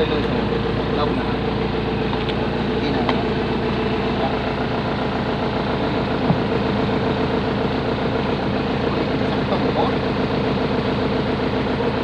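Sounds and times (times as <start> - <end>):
excavator diesel engine idling: 0.0 - 12.0.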